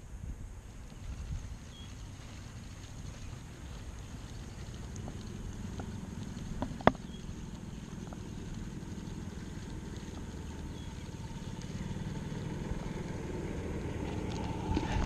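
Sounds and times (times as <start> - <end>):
golf cart motor rumble: 0.8 - 15.0.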